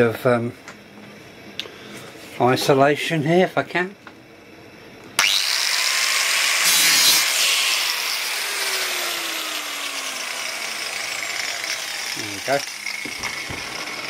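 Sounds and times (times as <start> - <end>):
rotary tool cutting metal rail: 5.2 - 14.0.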